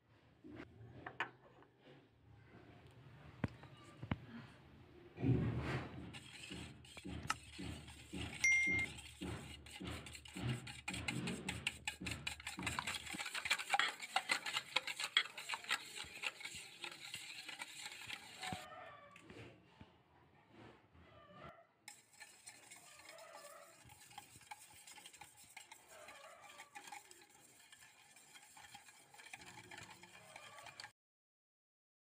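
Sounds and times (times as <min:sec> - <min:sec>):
whisk clinking in metal bowl: 0:06.1 - 0:18.6, 0:21.9 - 0:30.9.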